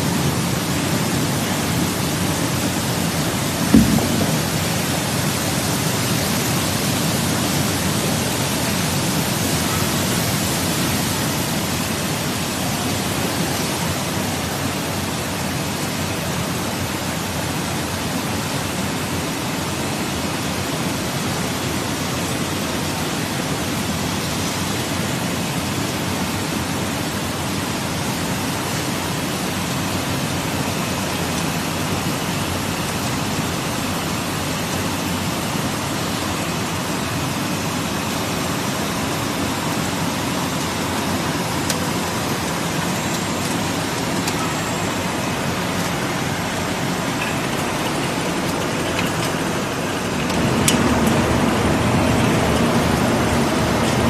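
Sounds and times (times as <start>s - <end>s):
spray nozzles pouring water: 28.4s - 54.0s.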